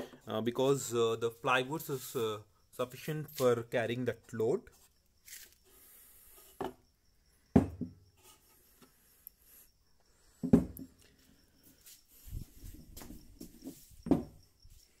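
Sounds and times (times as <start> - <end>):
hard objects knocking on plywood: 7.5 - 8.0, 10.4 - 10.9, 13.4 - 14.4.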